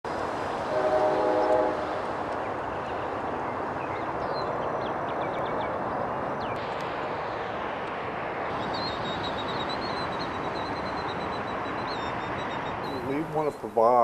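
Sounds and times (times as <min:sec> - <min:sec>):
traffic noise: 0:00.0 - 0:14.0
faint bird chirps: 0:08.6 - 0:13.3.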